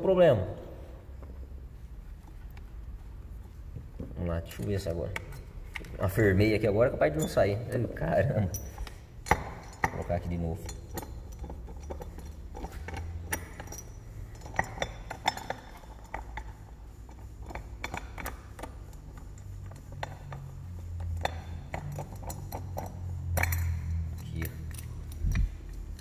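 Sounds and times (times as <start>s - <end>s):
metallic tool clinks and taps: 8.5s - 26.0s.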